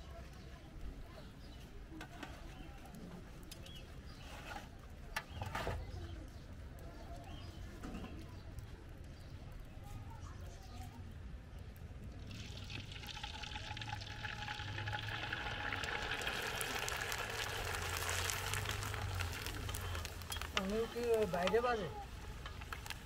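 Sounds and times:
wafer sizzling in hot oil: 0:12.2 - 0:23.0.

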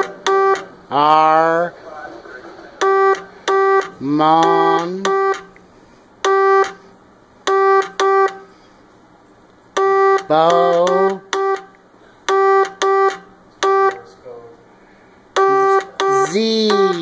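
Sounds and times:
buzzy morse code tone: 0:00.0 - 0:01.7, 0:02.3 - 0:05.5, 0:06.2 - 0:06.9, 0:07.5 - 0:08.5, 0:09.8 - 0:14.1, 0:15.4 - 0:17.0.

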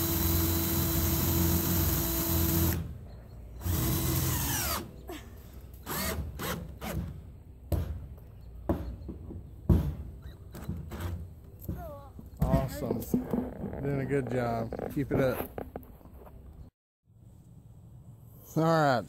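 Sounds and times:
cordless drill driving screws: 0:00.0 - 0:02.9.

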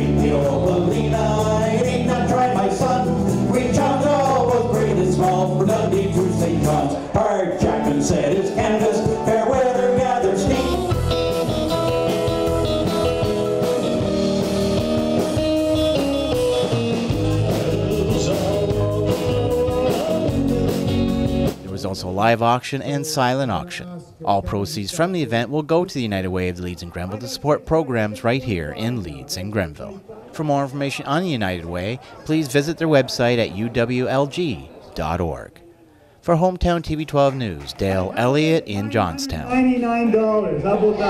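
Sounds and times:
man singing: 0:00.0 - 0:13.3, 0:16.4 - 0:22.2
live band with guitars: 0:00.0 - 0:21.7.

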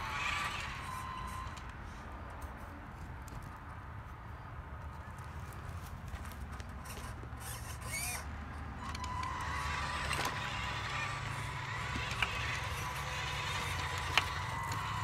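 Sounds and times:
electric motor whining: 0:00.0 - 0:01.7, 0:06.8 - 0:15.0.

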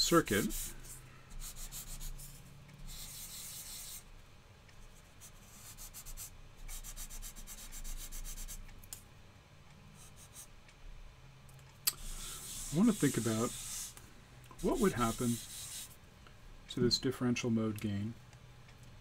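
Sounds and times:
eraser rubbing on whiteboard: 0:00.0 - 0:04.1, 0:05.0 - 0:08.6, 0:12.0 - 0:14.0, 0:14.6 - 0:16.0.

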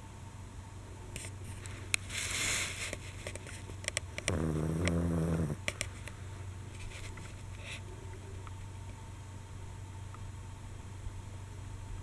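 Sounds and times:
dog breathing with a hiss: 0:01.5 - 0:03.7, 0:04.3 - 0:07.9
dog snuffling clicks: 0:01.6 - 0:05.9
dog snoring: 0:04.1 - 0:05.8.

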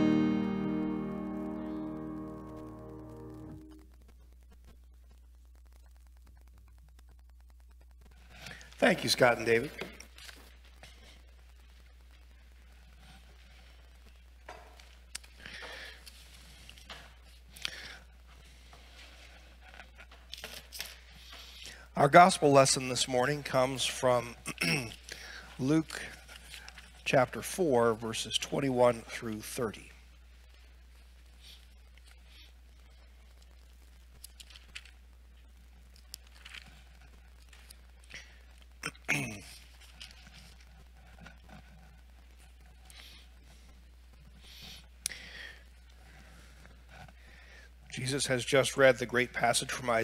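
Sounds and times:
paper rustling: 0:09.8 - 0:11.8
thin pages turning: 0:09.9 - 0:11.0.

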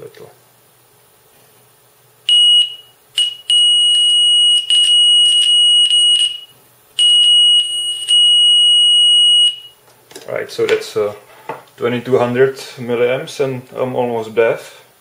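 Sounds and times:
piercing test tone from speaker: 0:02.3 - 0:09.8.

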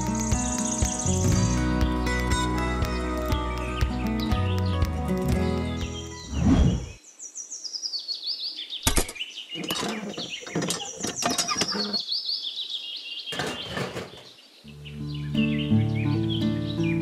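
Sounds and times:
background music: 0:00.0 - 0:06.8
sharp clicks and taps: 0:01.7 - 0:06.1
high bird chirps: 0:05.7 - 0:13.8
whoosh: 0:06.3 - 0:07.0.

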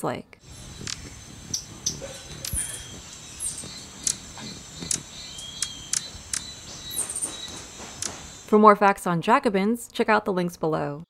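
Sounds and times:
faint steady hiss: 0:00.2 - 0:08.8
hummingbird squeaks: 0:00.4 - 0:08.4.

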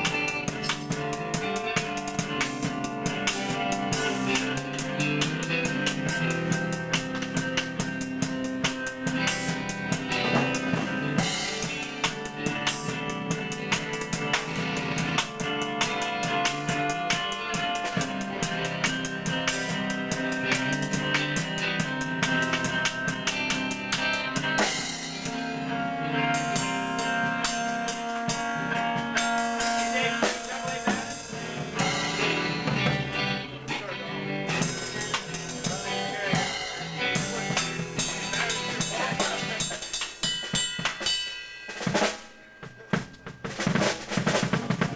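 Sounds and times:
sustained electric guitar notes: 0:00.0 - 0:39.7
electric bass: 0:00.0 - 0:39.8
drum kit kick and snare: 0:00.0 - 0:44.9
cymbals: 0:34.5 - 0:44.9.

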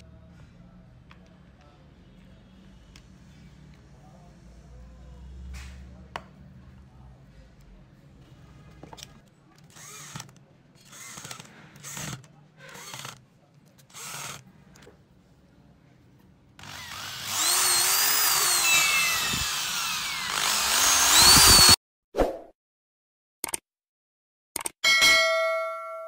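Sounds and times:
electric drill motor: 0:09.7 - 0:13.2, 0:13.9 - 0:14.4, 0:16.6 - 0:21.8.

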